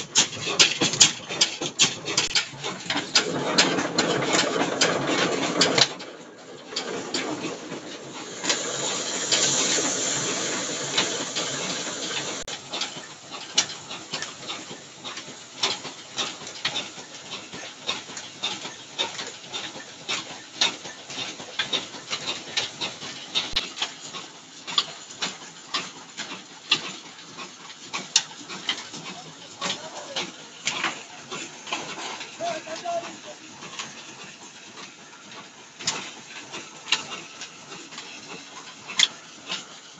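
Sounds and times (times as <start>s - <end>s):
engine clicks and knocks: 0.0s - 39.9s
steady hiss: 8.0s - 15.1s.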